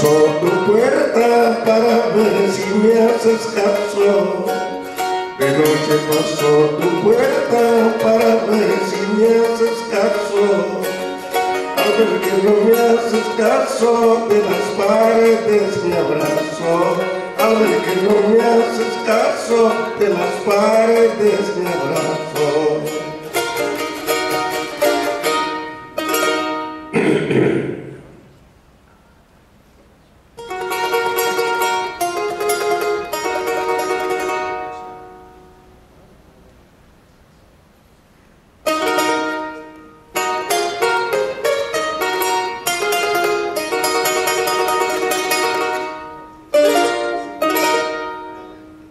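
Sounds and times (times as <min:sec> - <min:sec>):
man singing: 0:00.0 - 0:23.9
charango strumming: 0:00.0 - 0:29.4, 0:30.3 - 0:36.3, 0:37.3 - 0:48.9.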